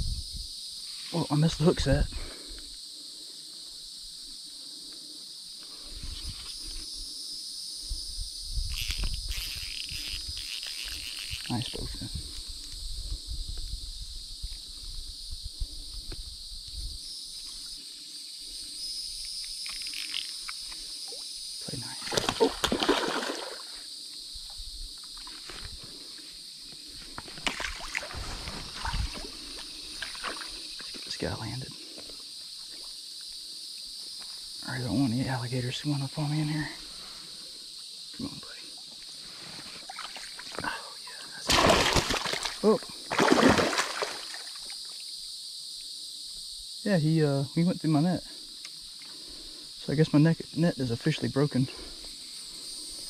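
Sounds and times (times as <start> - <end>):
insect chorus drone: 0.0 - 53.0
fish thrashing and splashing water: 22.0 - 23.7, 27.4 - 29.3, 41.5 - 44.7.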